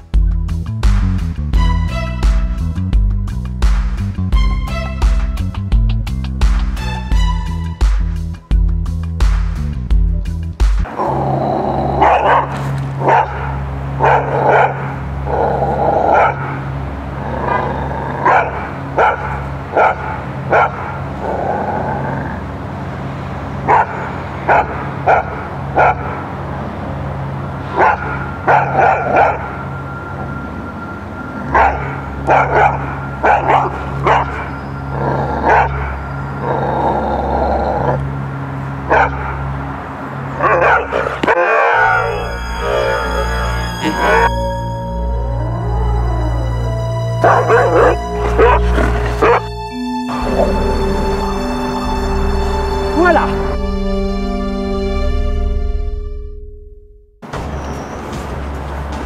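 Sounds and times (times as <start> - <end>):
dog barking aggressively: 12.0 - 16.6, 17.5 - 21.1, 23.6 - 26.3, 27.7 - 29.6, 31.5 - 34.6, 35.4 - 36.0, 38.9 - 39.5, 40.4 - 42.1, 47.2 - 49.5.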